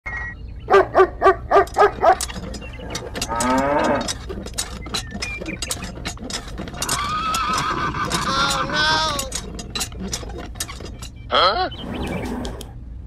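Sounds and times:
cow mooing: 0:02.8 - 0:04.2.

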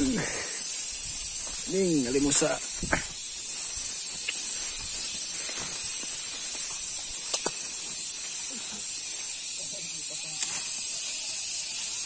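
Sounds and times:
footsteps in tall grass: 0:00.0 - 0:09.6
steady high hiss: 0:00.0 - 0:12.0.

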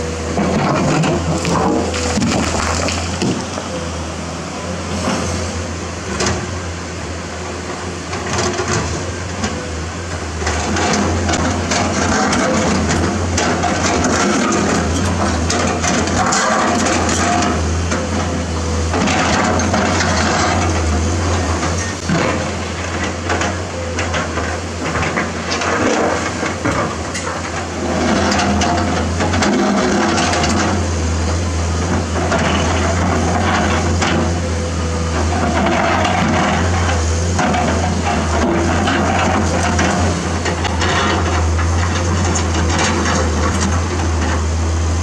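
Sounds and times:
excavator diesel engine running: 0:00.0 - 0:45.0
bucket scraping rocky soil: 0:00.6 - 0:03.7
stones clattering: 0:01.4 - 0:03.6.

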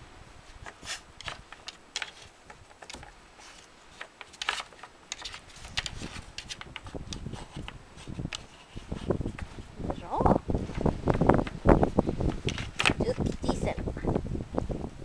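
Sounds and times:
wooden puzzle pieces clicking: 0:01.2 - 0:08.7, 0:12.3 - 0:13.4.

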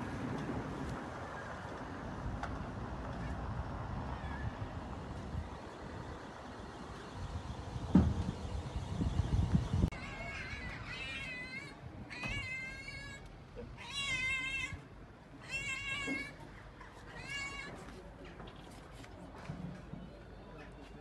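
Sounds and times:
cat meowing: 0:09.9 - 0:14.8, 0:15.4 - 0:16.4, 0:17.1 - 0:17.8.

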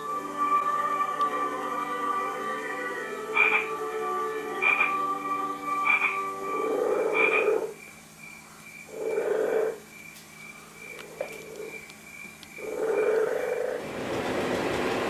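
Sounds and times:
frogs croaking: 0:00.0 - 0:13.8
faint high whine: 0:00.0 - 0:14.6.

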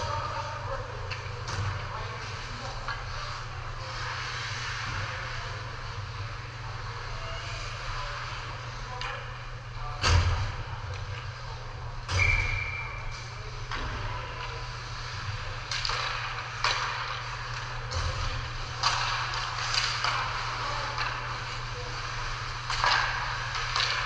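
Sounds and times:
steady low hum: 0:00.0 - 0:24.0
short whistle: 0:12.1 - 0:13.0.

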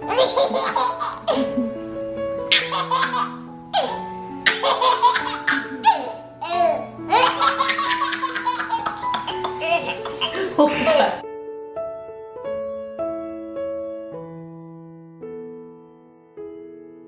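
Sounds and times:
background music: 0:00.0 - 0:17.0
baby giggling: 0:00.1 - 0:01.8, 0:02.5 - 0:11.2.

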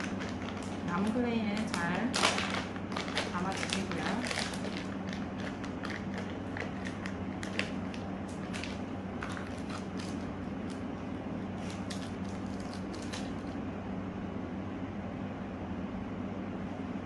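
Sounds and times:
plastic bag crinkling: 0:00.0 - 0:10.9, 0:11.6 - 0:13.6
steady low hum: 0:00.0 - 0:17.0.

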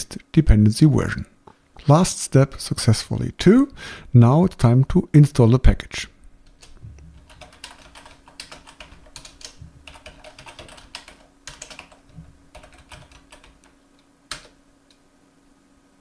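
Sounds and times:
typing on computer keyboard: 0:06.5 - 0:14.6.

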